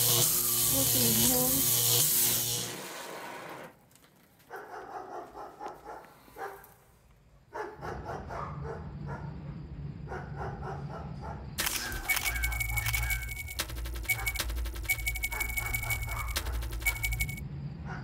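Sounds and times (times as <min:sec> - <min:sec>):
dog barking: 0:04.5 - 0:06.7, 0:07.4 - 0:13.3, 0:15.3 - 0:17.0.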